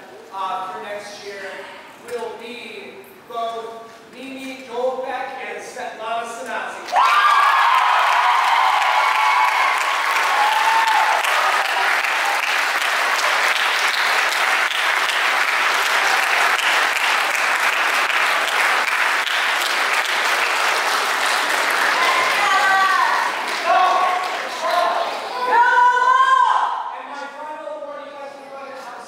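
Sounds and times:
person whooping: 6.9s - 11.9s
crowd clapping: 6.9s - 25.3s.

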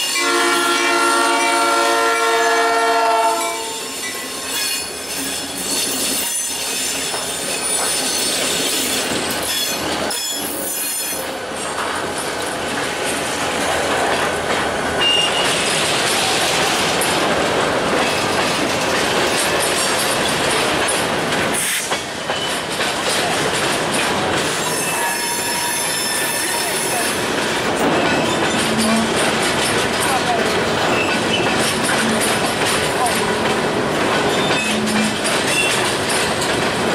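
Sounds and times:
train wheels rumbling over rails: 0.0s - 36.9s
wheel flanges squealing: 24.5s - 27.2s, 34.2s - 35.9s.

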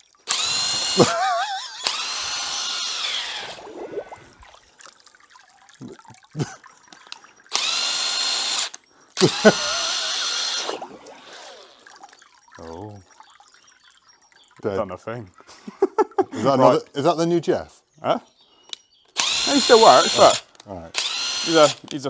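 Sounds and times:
impact wrench whining: 0.3s - 3.6s, 7.5s - 10.7s, 19.2s - 20.4s, 21.0s - 21.9s.

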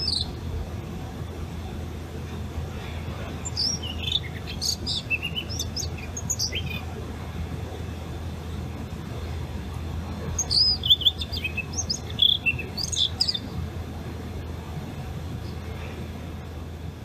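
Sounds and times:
bird singing warbling phrase: 0.0s - 0.4s, 3.4s - 6.9s, 10.3s - 13.5s
steady low hum: 0.0s - 17.0s.

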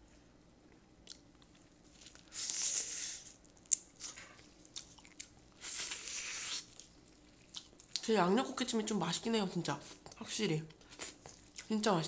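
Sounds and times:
biting and sucking crab: 5.6s - 6.8s.

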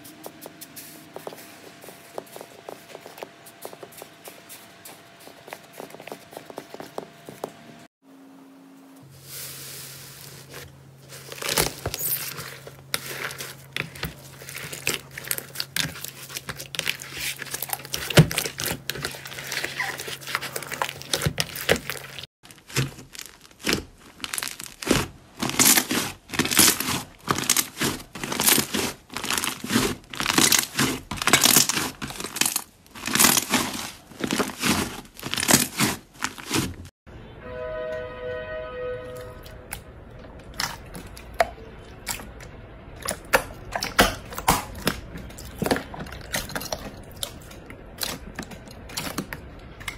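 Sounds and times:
hands squishing slime: 11.1s - 36.9s, 39.7s - 49.9s
low steady hum: 37.1s - 49.9s.

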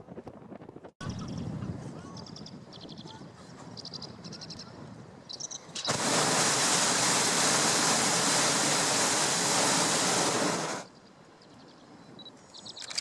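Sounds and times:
propane burner rushing hiss: 5.8s - 10.9s.

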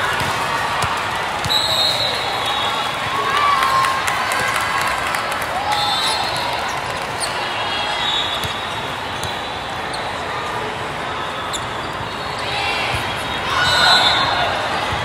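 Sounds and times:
volleyballs bounced and hit: 0.0s - 1.6s
voices in echoing sports hall: 0.0s - 15.0s.

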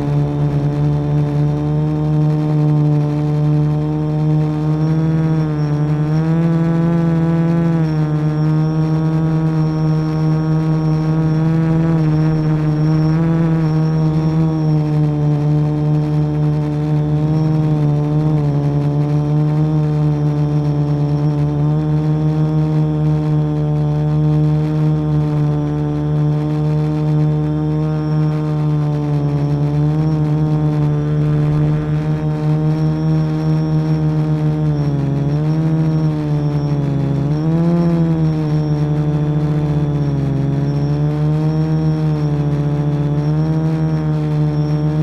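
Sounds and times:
quadcopter motors humming: 0.0s - 45.0s.

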